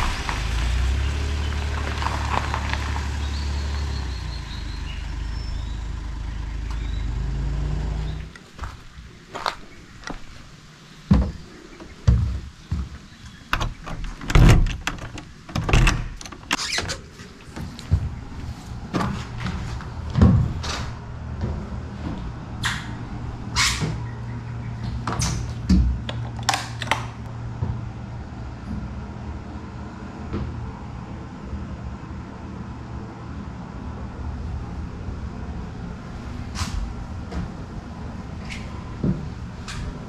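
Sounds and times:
knocks and clunks: 0:11.0 - 0:24.2.

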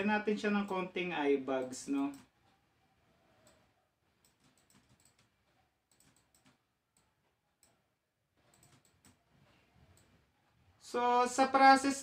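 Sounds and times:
computer mouse clicks: 0:02.0 - 0:02.6, 0:03.4 - 0:10.2.

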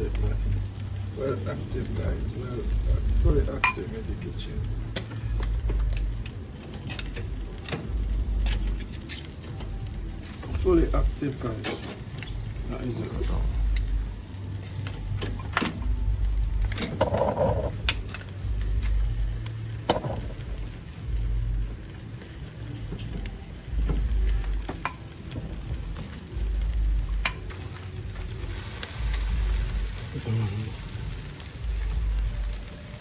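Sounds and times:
low rumble: 0:00.0 - 0:33.0
meat sizzling on a grill: 0:00.0 - 0:33.0
metal tongs clicking on grate: 0:06.0 - 0:09.4.

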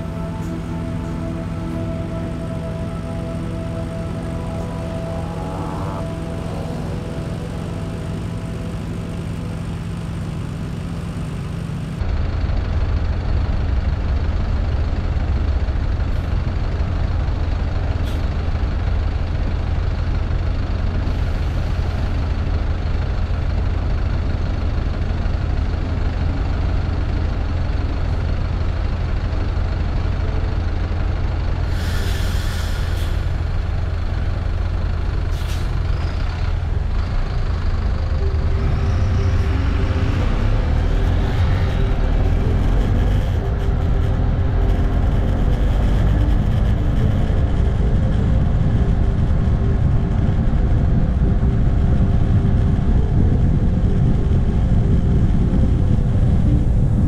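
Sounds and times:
motorcycle and bus engines idling: 0:00.0 - 0:57.0
air brakes hissing: 0:31.7 - 0:33.4.

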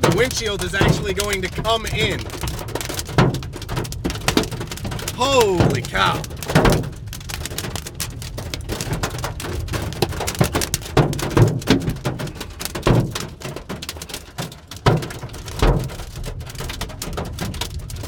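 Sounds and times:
heavier hail thunks: 0:00.0 - 0:07.0
hail pelting a car: 0:00.0 - 0:18.0.

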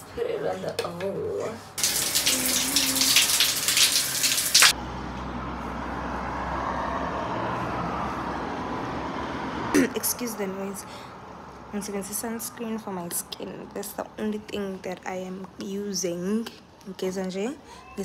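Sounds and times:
water running: 0:01.8 - 0:04.8.

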